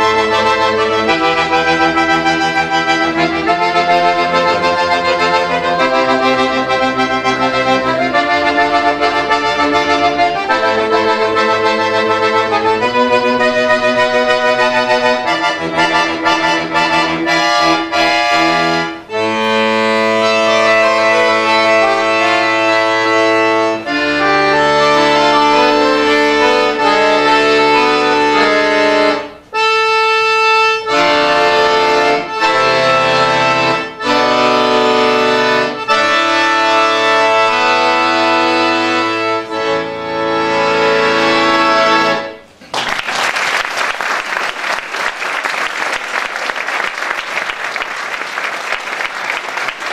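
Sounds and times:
piano accordion playing chords: 0.0 - 42.6, 44.2 - 49.9
audience applause: 42.6 - 49.9.

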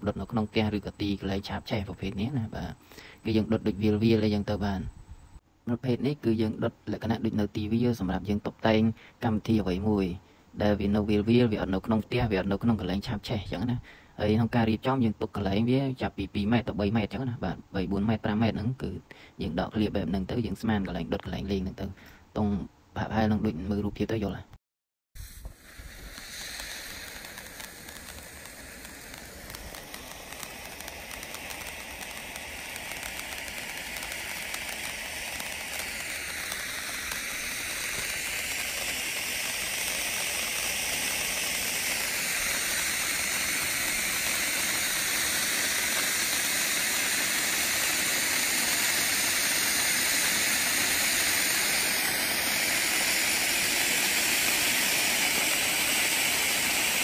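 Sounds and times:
fountain firework hissing: 0.0 - 4.9, 25.2 - 57.0.

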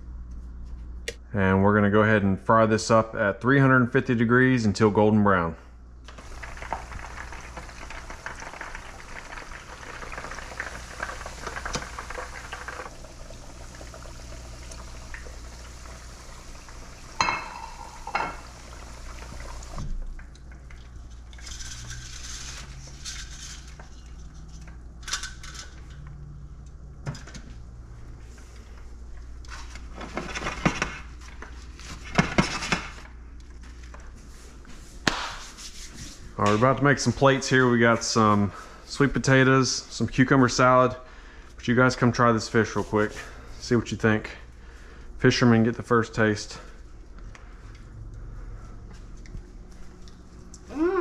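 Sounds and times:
deep-frying sizzle: 6.1 - 20.0.

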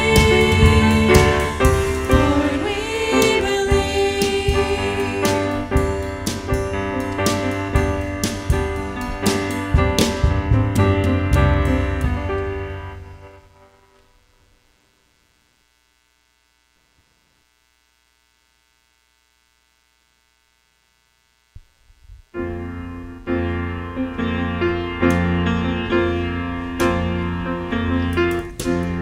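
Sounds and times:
piano sustained chords: 0.0 - 14.1, 22.4 - 29.0.

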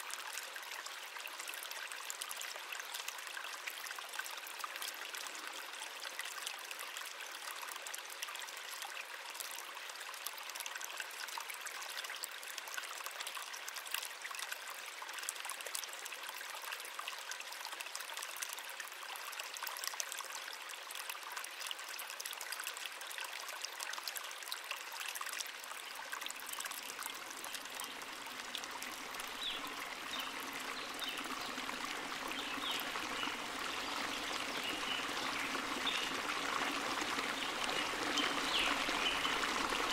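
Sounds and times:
stream water splashing: 22.8 - 39.9
deep low water rush: 26.8 - 39.9.

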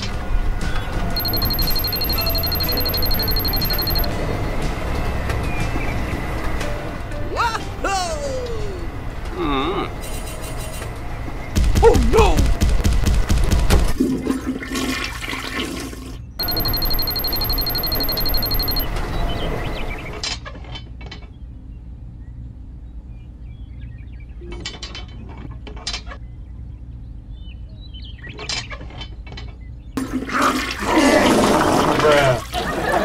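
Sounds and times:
toilet flushing: 14.0 - 16.2, 30.0 - 33.0.

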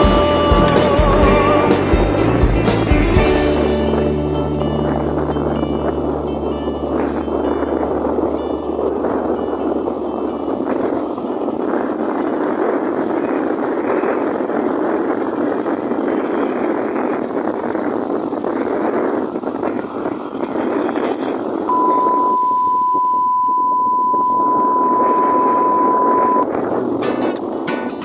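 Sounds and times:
music: 0.0 - 10.7, 27.0 - 28.0
motorcycle engine: 0.0 - 10.9
wind rushing over microphone: 0.0 - 28.0
steady high beep: 21.7 - 26.4.

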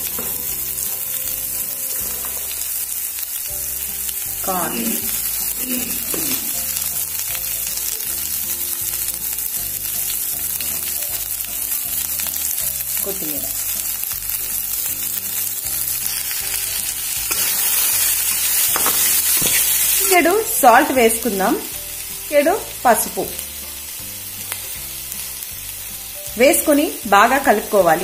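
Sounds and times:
vegetables sizzling in oil: 0.0 - 28.0.

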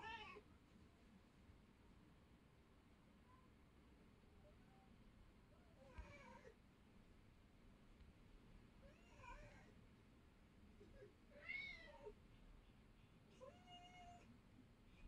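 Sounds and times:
cat meowing: 0.0 - 0.4, 11.3 - 12.2, 13.4 - 14.3.

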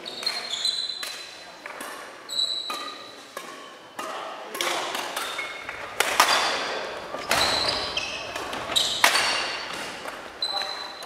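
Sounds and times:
sneakers squeaking on wooden floor: 0.0 - 1.2, 2.3 - 3.1, 5.2 - 11.0
racket hitting shuttlecock: 0.2 - 11.0.

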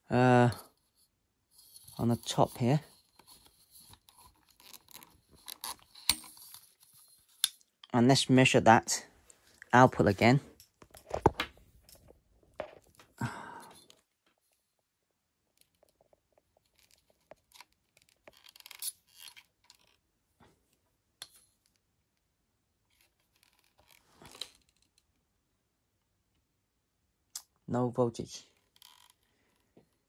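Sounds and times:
clicks scrapes and rustles: 0.5 - 7.9, 15.6 - 20.0, 22.9 - 25.1.

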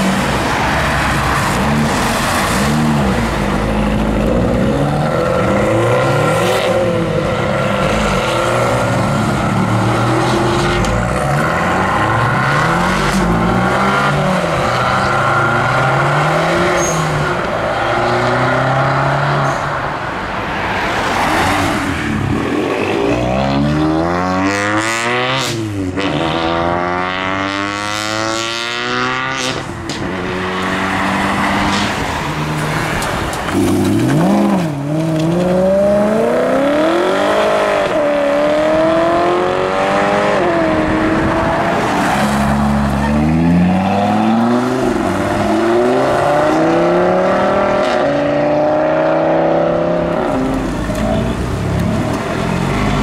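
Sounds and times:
cars accelerating hard: 0.0 - 53.0.

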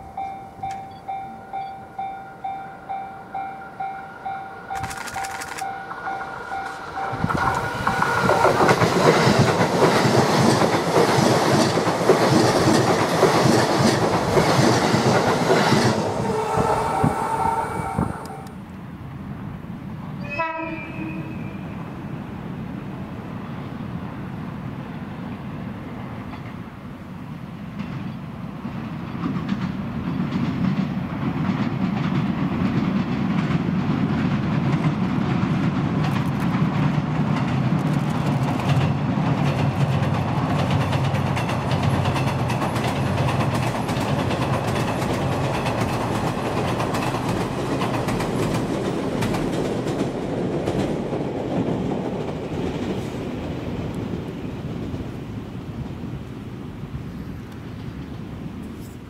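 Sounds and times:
train rumbling on steel bridge: 0.0 - 59.0.

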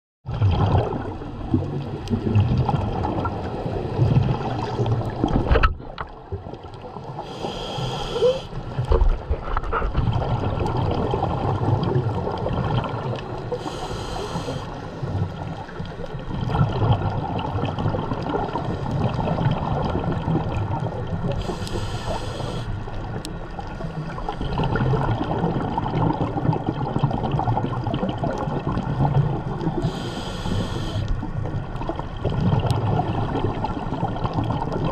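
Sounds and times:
gurgling exhaled bubbles: 0.3 - 34.9
regulator hissing inhale: 7.2 - 8.6, 13.5 - 15.0, 21.4 - 22.8, 29.8 - 31.1.

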